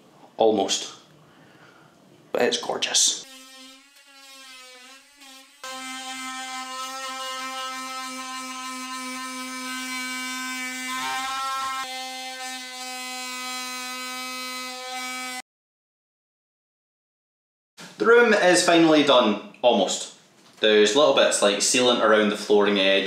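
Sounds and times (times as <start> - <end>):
oscillating multi-tool cutting wood: 3.2 - 15.4.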